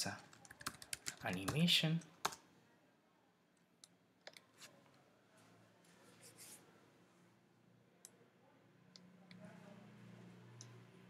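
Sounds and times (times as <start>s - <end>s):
computer mouse clicks: 3.8s - 4.7s.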